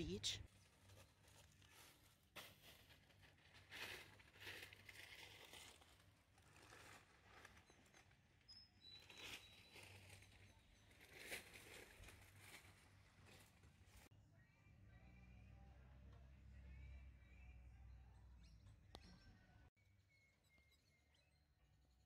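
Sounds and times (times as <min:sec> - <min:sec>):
soft rustles: 0:09.1 - 0:14.1.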